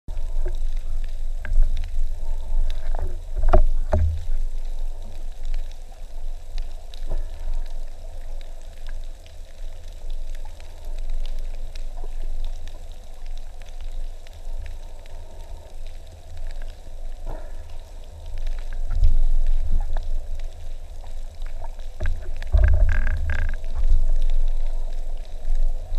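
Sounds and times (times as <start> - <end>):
underwater water rumble: 0.1 - 25.9
fine crackling clicks: 0.2 - 25.9.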